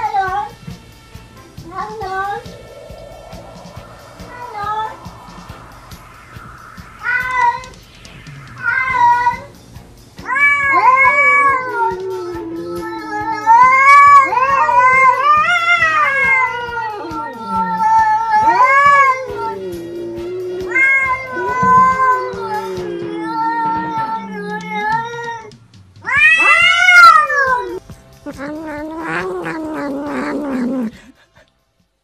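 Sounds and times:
cat yowling and meowing: 10.3 - 31.2.

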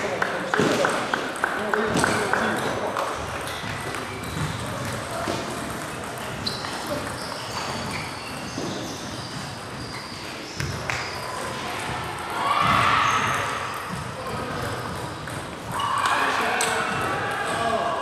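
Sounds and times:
sports hall background noise: 0.0 - 18.0
table tennis balls clicking: 0.2 - 8.4.

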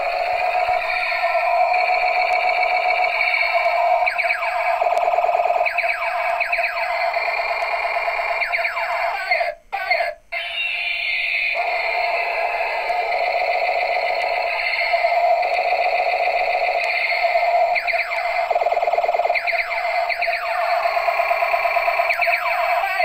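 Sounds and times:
warbling electronic tone: 0.0 - 9.2, 10.4 - 23.0
falling electronic zaps: 11.5 - 23.0.

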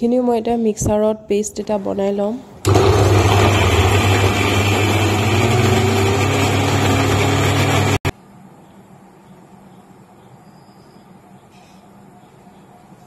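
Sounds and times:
mixer grinder motor hum: 2.6 - 8.1.

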